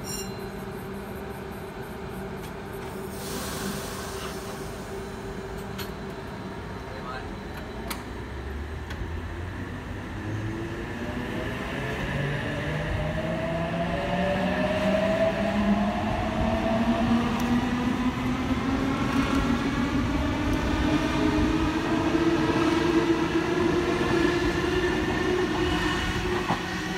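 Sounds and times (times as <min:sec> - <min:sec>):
wheels rumbling on rail: 0:07.5 - 0:26.9.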